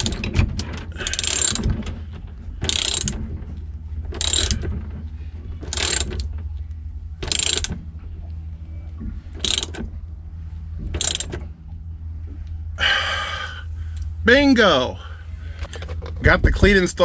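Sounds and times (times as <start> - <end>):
socket ratchet wrench clicking: 1.0 - 1.6, 2.7 - 3.2, 4.2 - 4.6, 5.7 - 6.3, 7.2 - 7.7, 9.4 - 9.8, 11.0 - 11.4.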